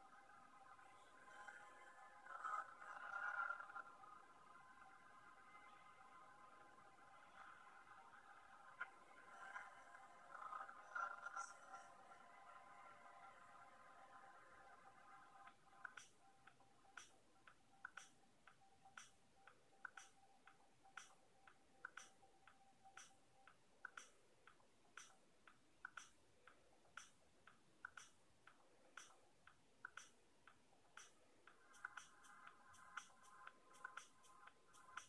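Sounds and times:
faint regular ticking: 14.7s - 35.0s.

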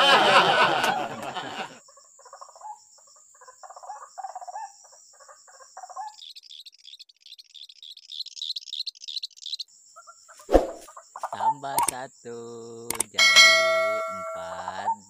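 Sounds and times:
high-pitched chirping: 12.9s - 15.0s
steady high tone: 13.2s - 14.9s.

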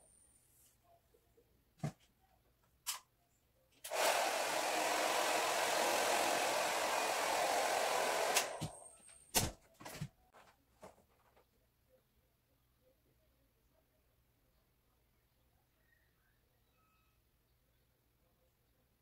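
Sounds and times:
hair dryer blowing: 3.9s - 8.8s.

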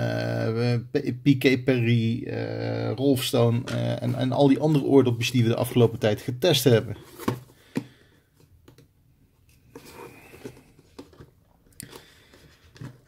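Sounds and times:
cardboard box rustling: 7.0s - 7.8s, 12.2s - 13.0s.

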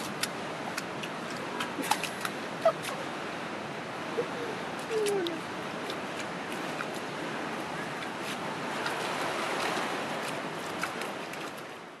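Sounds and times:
running water rushing: 0.0s - 12.0s
small splashes: 4.8s - 11.7s.

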